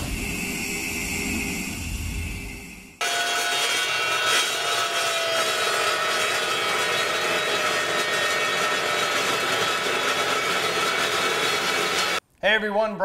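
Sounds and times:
chop saw cutting steel: 3.0s - 12.2s.

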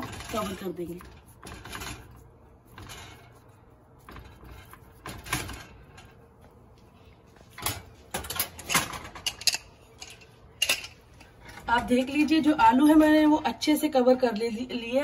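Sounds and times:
metal scrapes and knocks: 0.0s - 3.4s, 4.0s - 6.2s.

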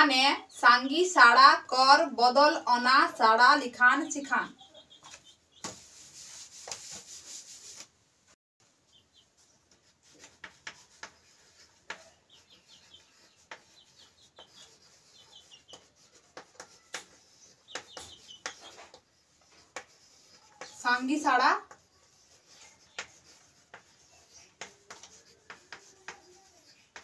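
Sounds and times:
chalk scratching on a board: 5.1s - 7.9s, 9.1s - 27.0s
duster rubbing a chalkboard: 5.1s - 7.9s, 8.9s - 27.0s.

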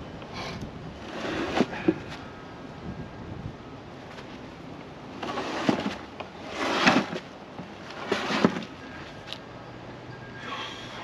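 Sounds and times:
heavy tank scraping: 1.0s - 2.2s, 5.2s - 9.4s.

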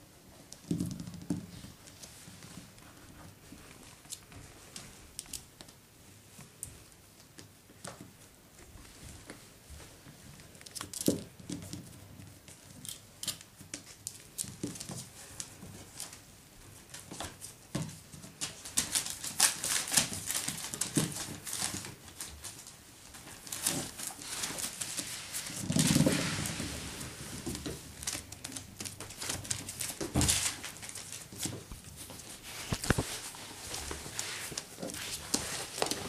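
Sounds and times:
puppy paws on wooden floor: 0.5s - 36.0s
newspaper crinkling: 18.4s - 27.2s, 27.9s - 36.0s.

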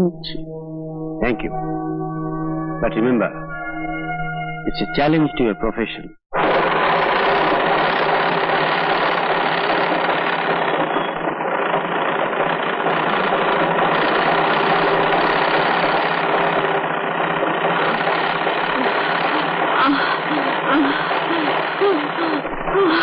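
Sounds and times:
treadle sewing machine rattling: 6.4s - 23.0s.

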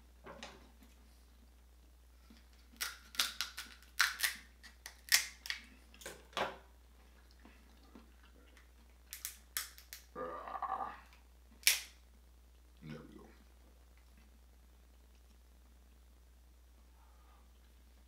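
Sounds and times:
crab shells cracking: 2.6s - 6.1s, 8.6s - 10.1s, 11.6s - 12.0s.

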